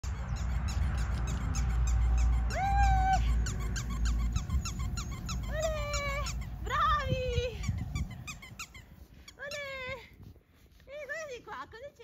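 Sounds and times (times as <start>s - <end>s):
low rumble: 0.0s - 9.2s
high squeaks: 0.0s - 9.8s
running footsteps on dry grass: 4.4s - 12.0s.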